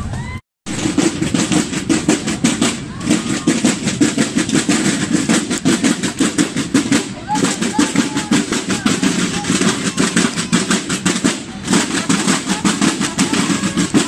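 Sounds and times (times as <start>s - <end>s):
snare drums playing fast beat: 0.7s - 14.0s
brass band music: 3.6s - 14.0s.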